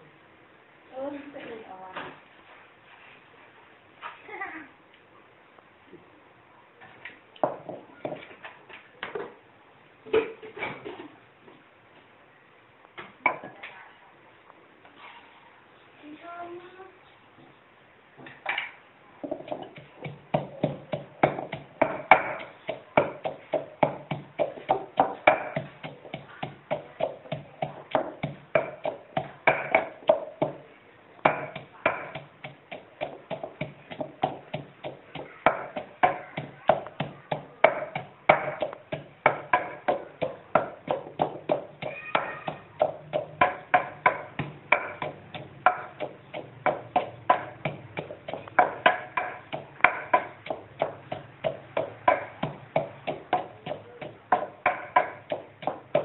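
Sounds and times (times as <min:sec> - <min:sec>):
wooden pestle pounding in mortar: 0:07.4 - 0:08.4, 0:13.2 - 0:13.6, 0:19.2 - 0:56.0.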